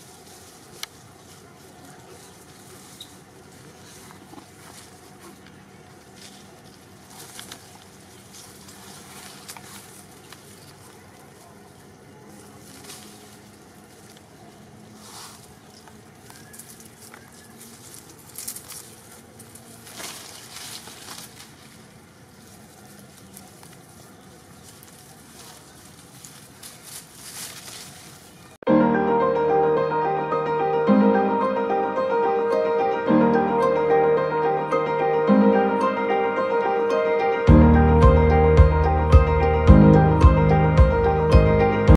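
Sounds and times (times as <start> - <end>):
rustling and crackling of leaves: 0.0 - 28.7
steady outdoor hiss: 0.0 - 41.9.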